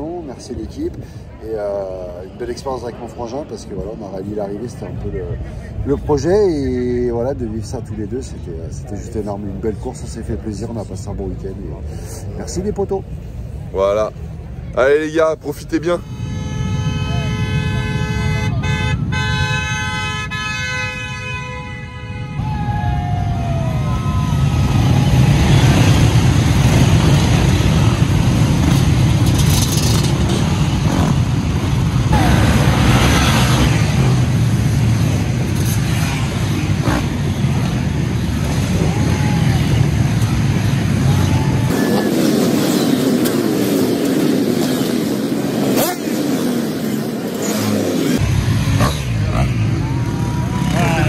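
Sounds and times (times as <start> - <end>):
motorcycles revving and passing: 22.7 - 51.0.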